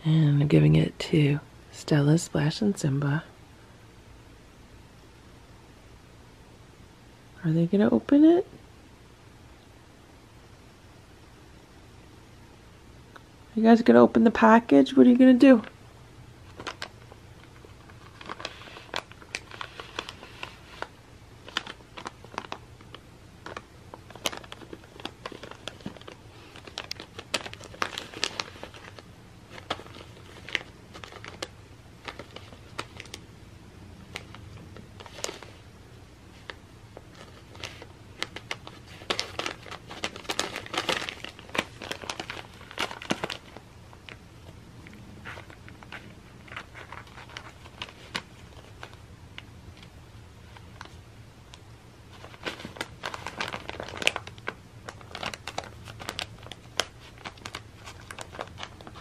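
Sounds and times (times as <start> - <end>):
wrapping paper crinkling: 16.4 - 33.3, 34.1 - 35.7, 36.3 - 44.2, 45.2 - 49.0, 49.7 - 59.0.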